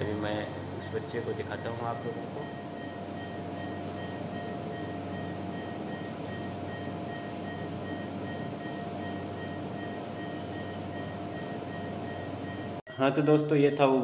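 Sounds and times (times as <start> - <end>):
constant mid-pitched tone: 0.0 - 14.0
medical equipment hum and hiss: 0.0 - 14.0.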